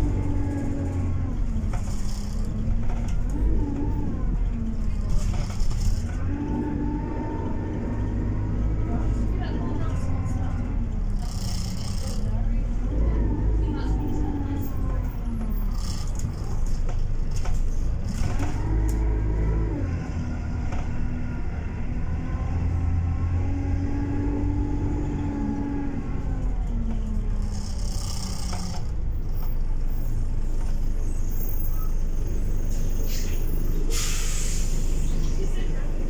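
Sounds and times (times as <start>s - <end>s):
bus engine running under load: 0.0s - 36.0s
short hissing noises: 33.1s - 35.0s.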